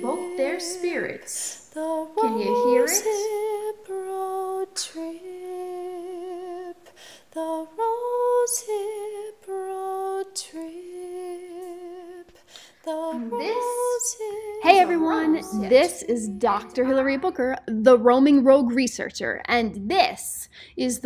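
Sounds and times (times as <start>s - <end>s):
woman chanting: 0.0s - 3.5s, 12.9s - 17.7s
breaths between notes: 6.8s - 7.4s, 12.3s - 12.9s, 20.5s - 20.8s.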